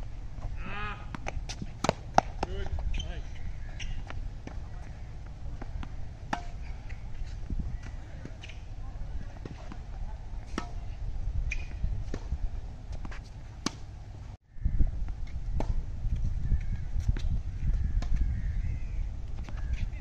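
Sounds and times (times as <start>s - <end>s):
steady low rumble: 0.0s - 20.0s
tennis ball struck by racket: 1.1s - 2.8s, 3.9s - 10.9s, 11.5s - 13.9s
ball bouncing on hard court: 1.1s - 3.1s.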